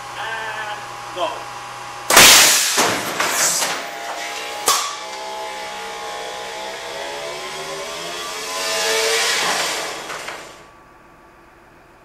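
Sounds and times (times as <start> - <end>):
mechanical whine drifting pitch: 3.8 - 11.6.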